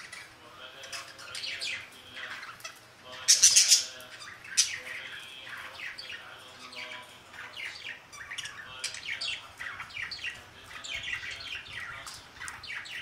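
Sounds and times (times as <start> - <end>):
budgerigars chirping: 0.0 - 13.0.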